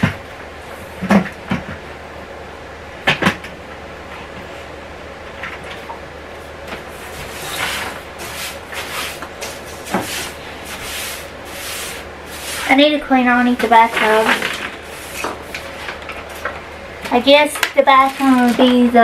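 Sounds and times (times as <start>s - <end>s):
broom sweeping hard floor: 6.4s - 16.4s.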